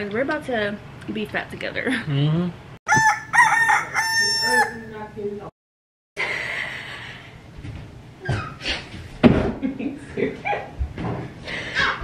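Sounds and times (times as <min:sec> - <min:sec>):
rooster crowing: 0:02.9 - 0:05.0.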